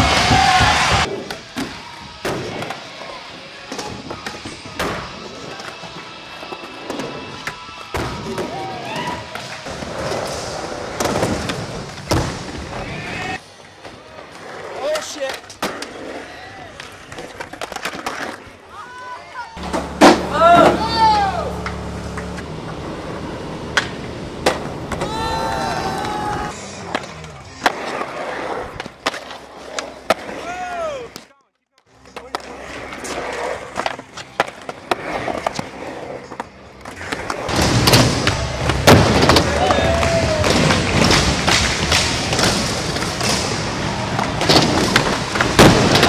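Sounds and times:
skateboards thudding on ground: 0.0s - 2.8s, 19.6s - 22.4s, 37.0s - 46.0s
skateboard rolling on concrete: 0.0s - 31.2s, 31.9s - 46.0s.

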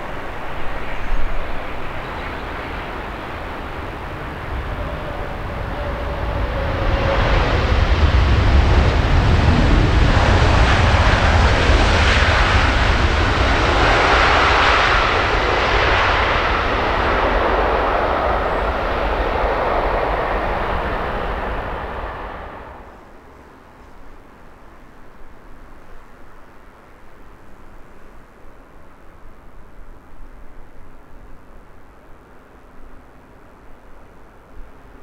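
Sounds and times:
airliner jet engines passing: 0.0s - 23.8s.

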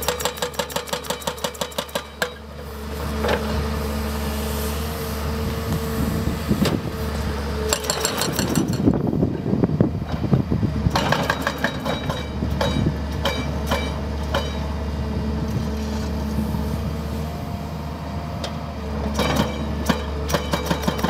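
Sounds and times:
sharp metallic knocks: 0.0s - 2.4s, 7.7s - 9.0s, 10.9s - 14.7s, 19.1s - 21.0s
diesel engine running: 2.0s - 21.0s.

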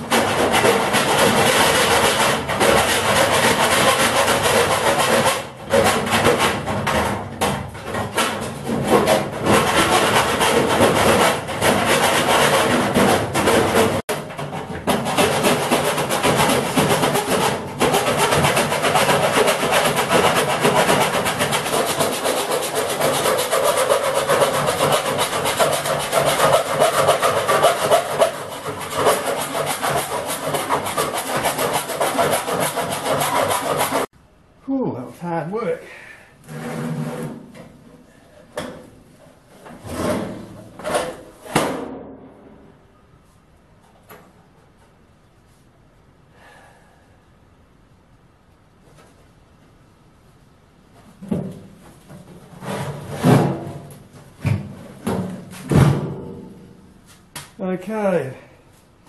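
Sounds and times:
grinder cutting sheet steel: 15.0s - 34.1s.

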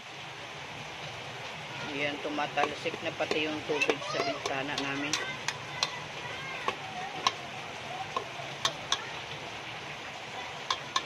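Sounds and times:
food sizzling in a pot: 0.0s - 11.0s
metal spoon clinking on pot: 2.5s - 6.0s, 10.7s - 11.0s.

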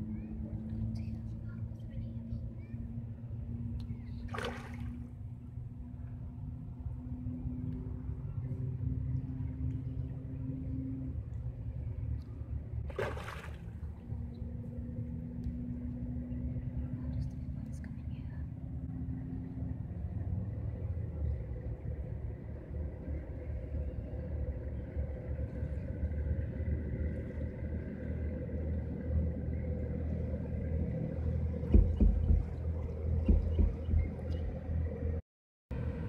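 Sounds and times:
engine drone: 0.0s - 36.0s
low thumps: 31.6s - 34.6s.

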